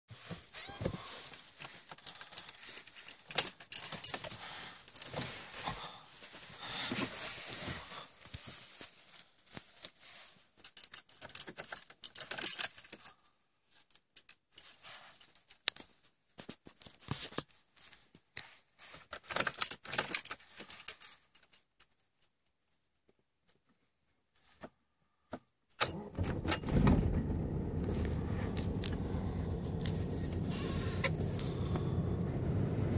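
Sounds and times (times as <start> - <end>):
car keys jangling: 1.3 - 5.2, 10.6 - 13.2, 19.1 - 22.4, 25.8 - 32.5
diesel engine starting and idling: 25.8 - 32.9.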